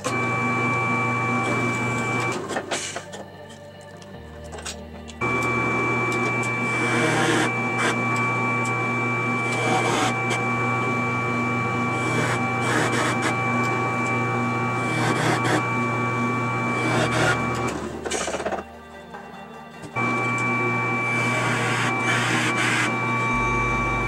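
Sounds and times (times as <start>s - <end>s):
drill press motor whining: 0.0s - 3.3s, 4.6s - 24.0s
drill bit boring into wood: 5.2s - 10.7s, 11.3s - 18.5s, 21.0s - 24.0s.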